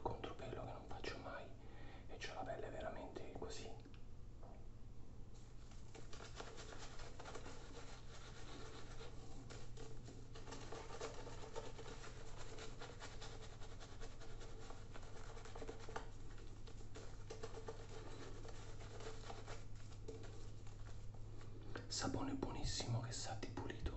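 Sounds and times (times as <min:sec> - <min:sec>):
shaving brush swishing strokes: 0:05.7 - 0:21.5.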